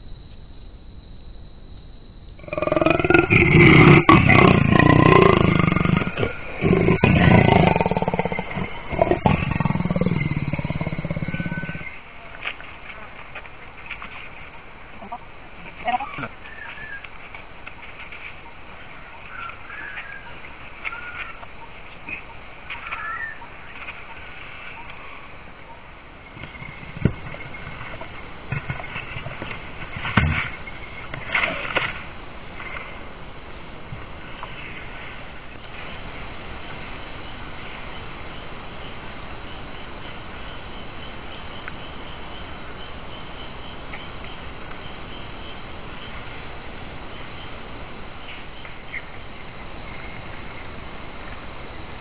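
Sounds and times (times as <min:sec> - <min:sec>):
forest background noise: 0:00.0 - 0:52.0
leopard growling: 0:02.4 - 0:12.0.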